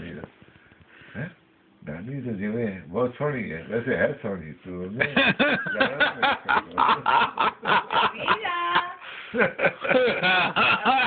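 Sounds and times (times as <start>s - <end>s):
adults chuckling: 5.0s - 11.0s.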